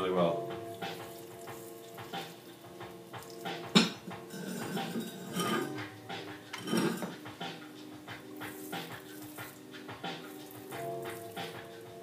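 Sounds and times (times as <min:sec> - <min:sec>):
tools scraping inside stoneware crock: 0:04.3 - 0:05.7, 0:06.6 - 0:07.1.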